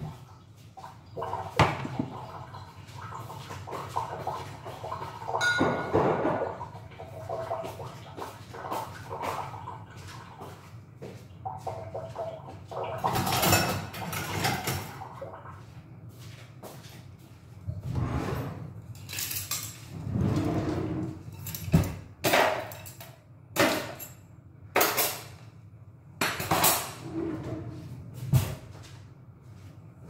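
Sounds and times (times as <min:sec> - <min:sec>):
kitchen scraping and rustling: 0:16.2 - 0:23.0.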